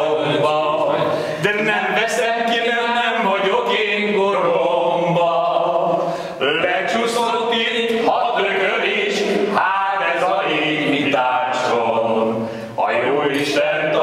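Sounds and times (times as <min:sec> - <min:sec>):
men singing together: 0:00.0 - 0:14.0.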